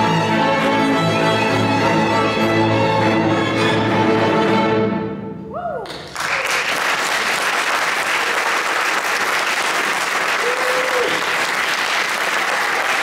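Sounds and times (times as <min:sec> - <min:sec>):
audience applause: 0:05.9 - 0:13.0.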